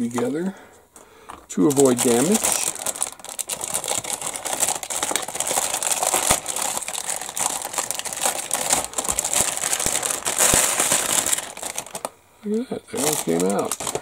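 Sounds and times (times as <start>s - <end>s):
plastic bag crinkling: 1.3s - 12.2s, 12.9s - 14.0s.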